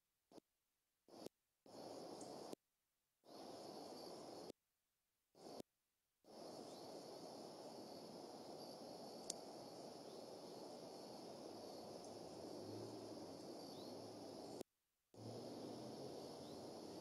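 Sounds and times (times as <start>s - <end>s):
steady low hiss: 1.7s - 2.6s, 3.3s - 4.5s, 6.3s - 14.6s, 15.2s - 17.0s
high insect-like drone: 6.4s - 14.6s, 15.2s - 17.0s.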